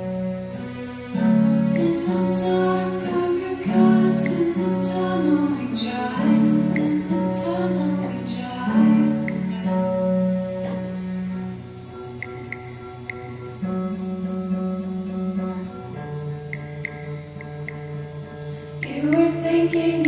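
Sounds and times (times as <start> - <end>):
higher melody lines: 0.0 - 20.0
sharp strummed accents: 0.0 - 20.0.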